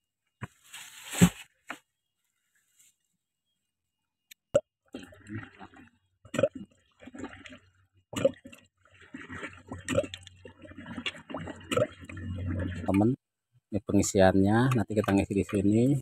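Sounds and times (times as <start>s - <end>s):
rustling and scraping: 0.4s - 1.8s
plastic funnel and bucket handled: 0.4s - 1.9s.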